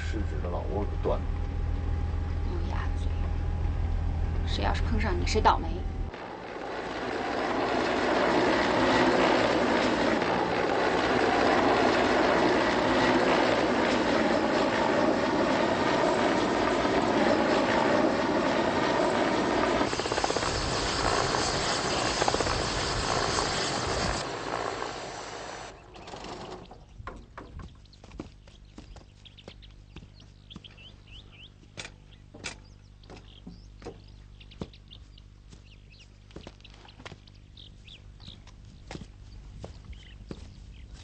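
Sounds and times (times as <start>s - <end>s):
helicopter rotor and turbine: 0.0s - 28.3s
high turbine hiss: 15.4s - 25.8s.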